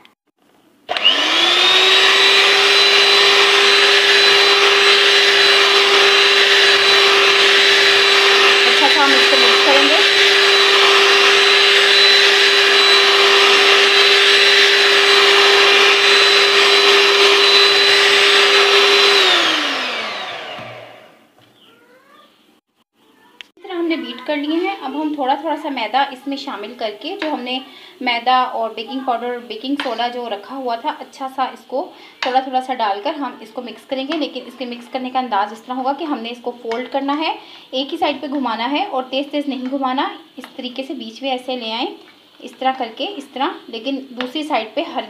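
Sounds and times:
electric hand mixer running: 0.9 - 21.3.

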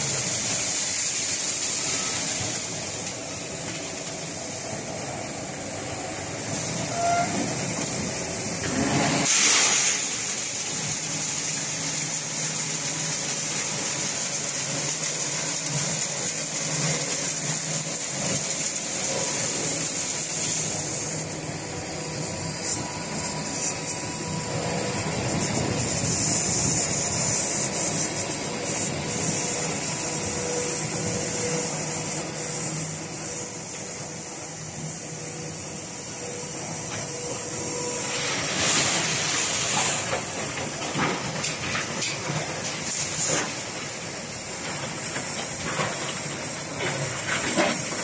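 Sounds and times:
high hiss: 0.0 - 48.0
machinery humming: 0.0 - 48.0
faint steady whine: 18.9 - 47.9.

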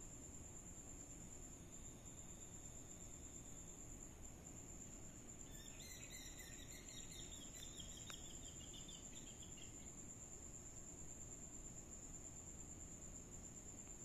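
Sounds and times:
insect chirping: 0.0 - 14.0
small tick: 7.6 - 8.3, 13.8 - 14.0.

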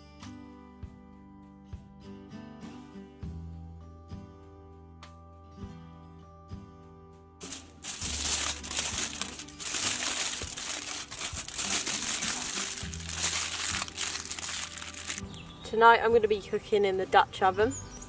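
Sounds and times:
quiet acoustic guitar music: 0.0 - 8.6
aluminium foil crinkling: 7.4 - 15.4.

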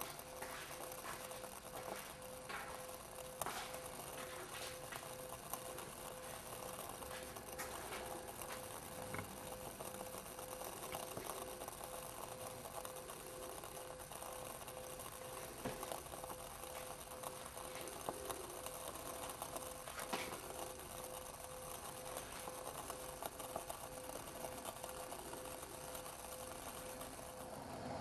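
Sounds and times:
steady hum: 0.0 - 28.0
stove burning with faint hiss: 0.0 - 28.0.

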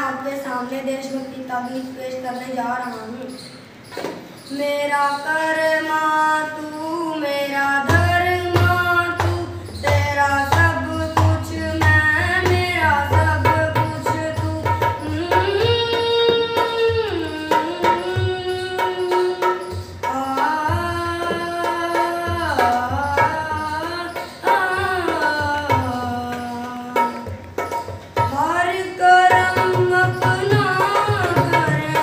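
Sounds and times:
tabla strokes: 6.7 - 32.0.

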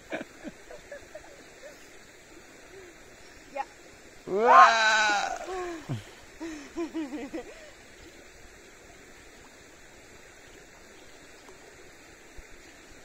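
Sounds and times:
river water flowing: 0.0 - 13.0
person calling: 4.3 - 6.0.

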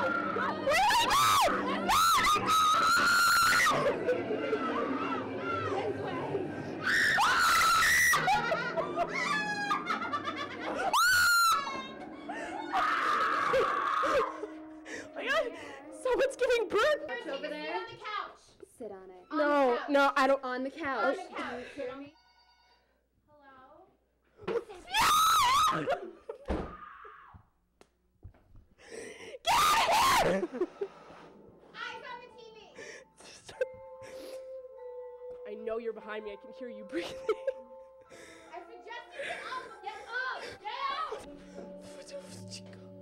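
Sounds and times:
young women screaming: 0.0 - 14.6, 24.9 - 26.0, 26.6 - 27.4, 29.5 - 30.5
nervous laughter: 0.7 - 5.3, 7.2 - 15.5, 29.8 - 31.0.

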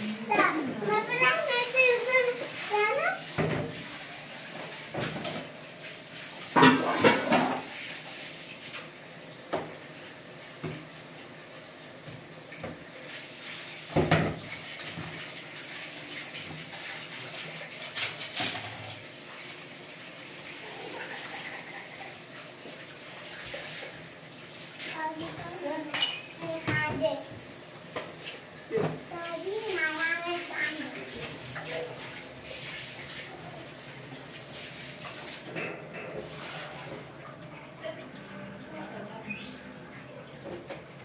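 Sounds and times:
running water: 0.0 - 41.0
dishes clattering in a sink: 0.3 - 5.6, 6.4 - 8.3, 13.8 - 15.6, 16.2 - 19.2, 24.8 - 32.2, 34.5 - 38.0, 40.3 - 41.0.

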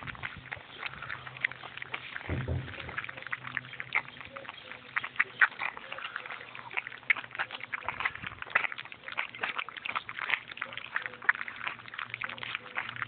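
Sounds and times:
puppies eating wet smacking: 0.0 - 13.0.

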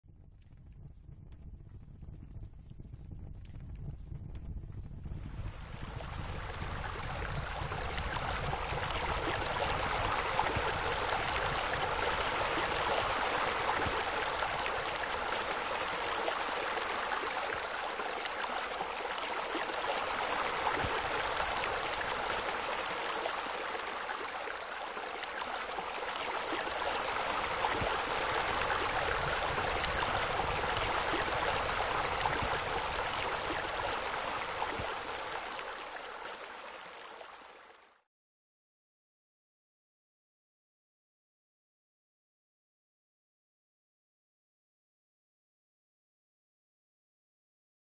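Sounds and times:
running water rushing: 5.4 - 37.9.

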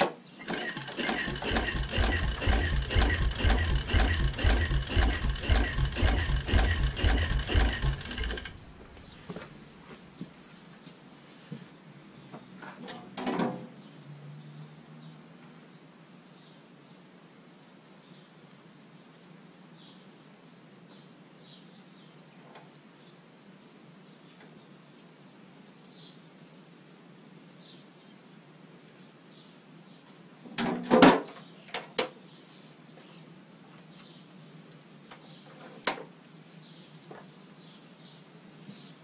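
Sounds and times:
tractor engine chugging: 0.4 - 9.6.

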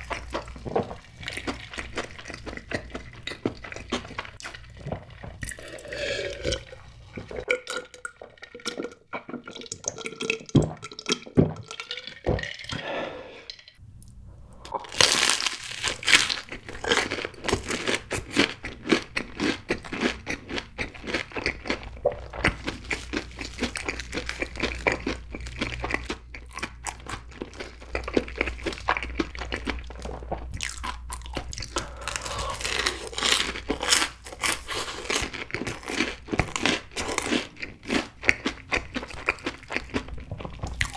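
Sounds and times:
gulping a drink: 5.4 - 13.7
crunchy chewing: 14.7 - 40.9
crunchy bite: 30.6 - 38.5.

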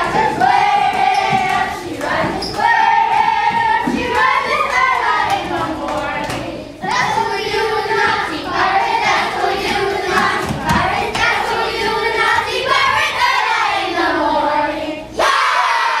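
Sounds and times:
children singing: 0.0 - 16.0
shouting and cheering: 15.2 - 16.0.

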